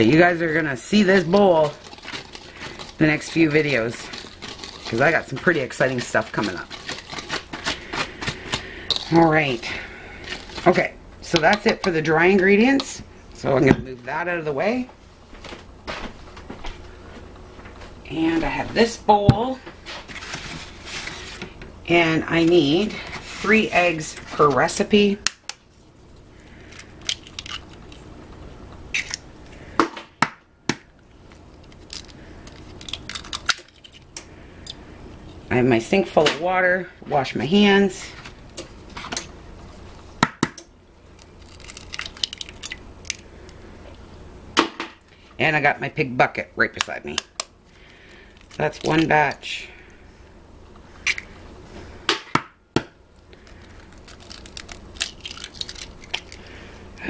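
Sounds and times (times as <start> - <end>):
eggshell crackling: 0.0 - 13.4, 24.6 - 29.8, 30.9 - 35.4, 40.9 - 44.1, 46.7 - 49.5, 53.1 - 57.0
eggshells tapping and cracking: 26.6 - 28.0, 28.9 - 34.3, 40.2 - 43.2, 52.1 - 56.5.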